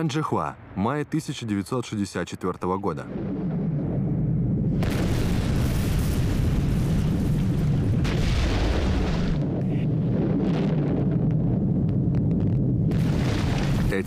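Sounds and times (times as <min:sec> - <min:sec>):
deep blasting rumble: 0:03.0 - 0:14.0
loud explosive crash: 0:03.1 - 0:11.7, 0:12.8 - 0:14.0.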